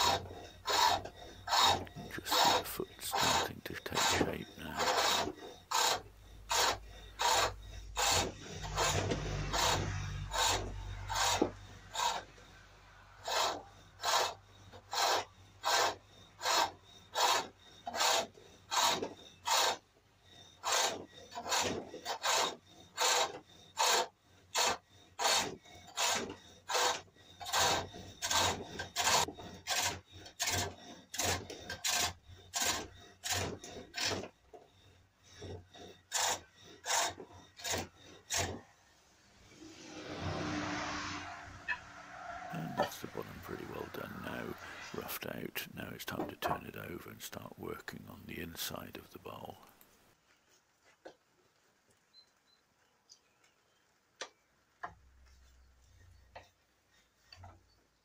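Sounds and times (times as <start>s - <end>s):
hook tool rasping cut on wood: 0.0s - 12.4s, 13.2s - 38.8s.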